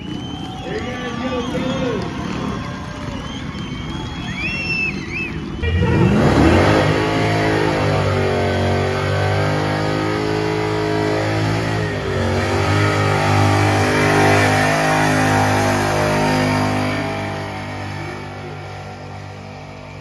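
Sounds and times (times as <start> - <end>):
engine revving hard: 5.5 - 20.0.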